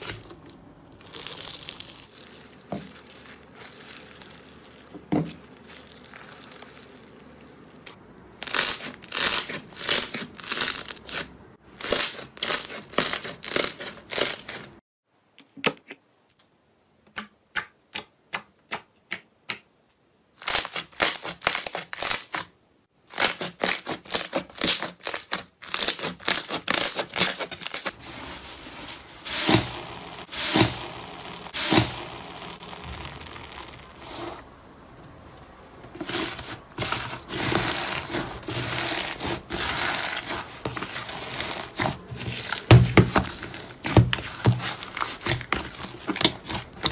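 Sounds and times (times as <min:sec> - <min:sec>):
crunchy slime crackling: 0:00.0 - 0:14.6, 0:23.1 - 0:27.9, 0:29.2 - 0:34.5, 0:35.9 - 0:46.9
foam slime crunching: 0:00.0 - 0:14.7, 0:23.1 - 0:34.5, 0:35.9 - 0:46.9.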